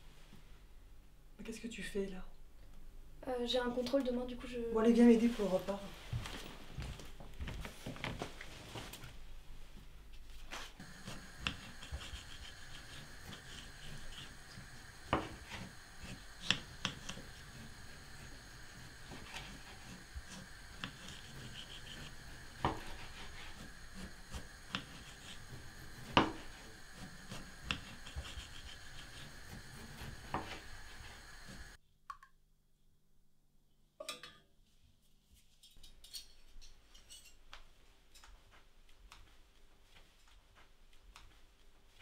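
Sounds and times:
dishes and utensils clinking: 35.6 - 37.4.

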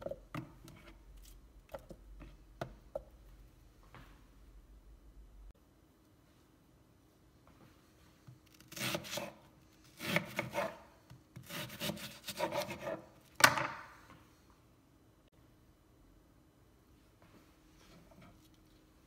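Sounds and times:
knife sawing through onion: 8.6 - 13.1.

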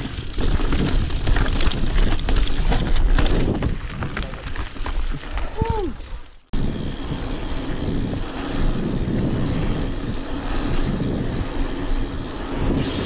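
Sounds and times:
bike tyres rolling on asphalt: 0.0 - 13.0
wind on microphone: 6.6 - 13.0.

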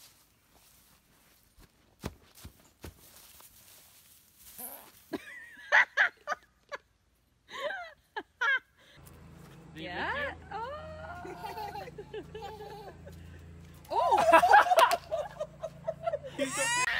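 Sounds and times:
person laughing: 5.1 - 6.8, 10.6 - 16.9.

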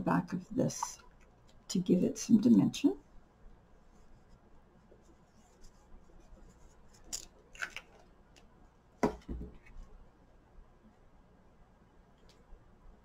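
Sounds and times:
card tapping on table: 9.0 - 9.6.

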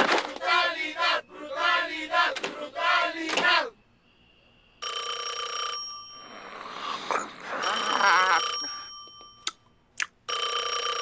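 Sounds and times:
telephone bell ringing: 4.8 - 6.7, 7.5 - 9.4, 10.3 - 11.0.

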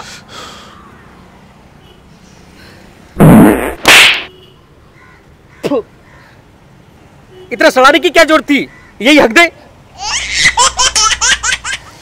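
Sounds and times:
fart sounds: 3.2 - 4.3.

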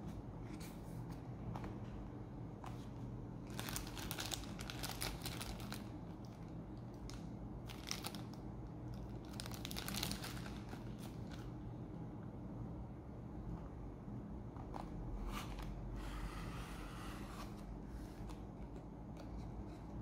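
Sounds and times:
steady low hum: 0.0 - 20.0
plastic bag crinkling: 3.5 - 11.5.

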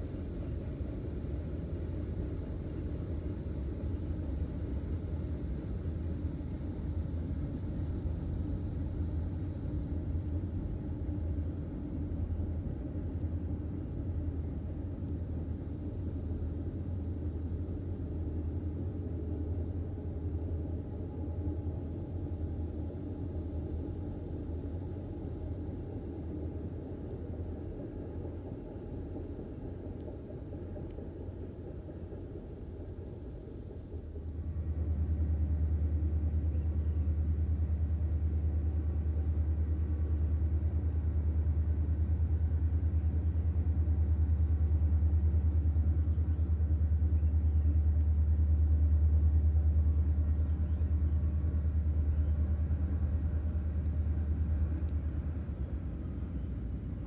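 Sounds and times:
diesel locomotives rumbling: 0.0 - 57.0
insects buzzing: 50.1 - 57.0.

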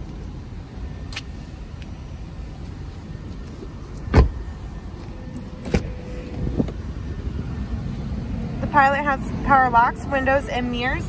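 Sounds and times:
low steady rumble: 0.0 - 11.0
dull thump: 4.1 - 4.5.

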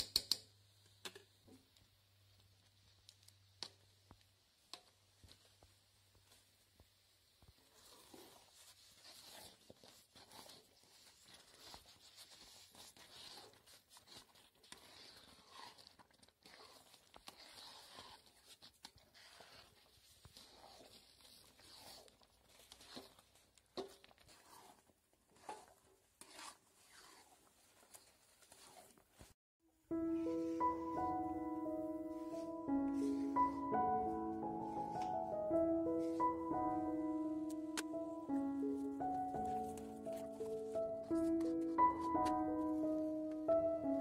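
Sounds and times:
spatula scraping thick food: 7.6 - 29.0.

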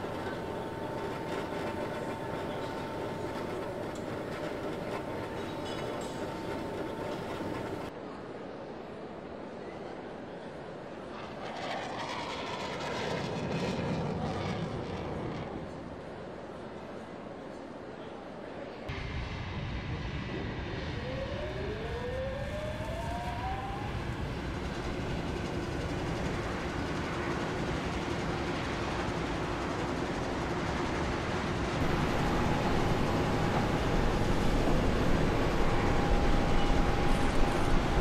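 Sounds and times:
jet engine rushing hum: 0.0 - 7.9, 18.9 - 38.0
rising engine whines: 0.0 - 7.9, 18.9 - 38.0
steady engine whine: 0.0 - 7.9, 11.1 - 16.7, 18.9 - 38.0.

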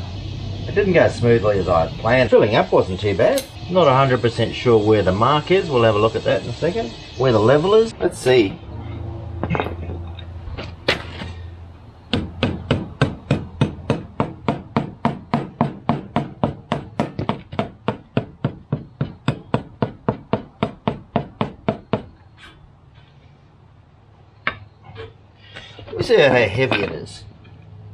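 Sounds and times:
rapid sharp knocks: 12.1 - 22.1.

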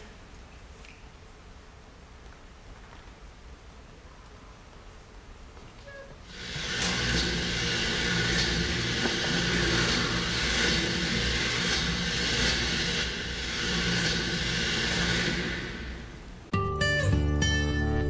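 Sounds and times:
loud rushing hiss: 6.2 - 16.5.

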